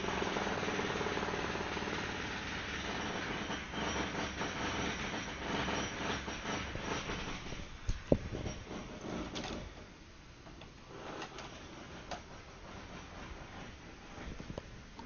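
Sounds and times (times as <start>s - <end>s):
jackhammer rattling: 0.0s - 9.7s.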